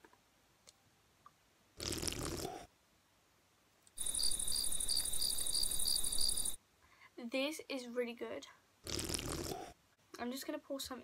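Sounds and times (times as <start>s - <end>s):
cricket chirping: 4.0s - 6.6s.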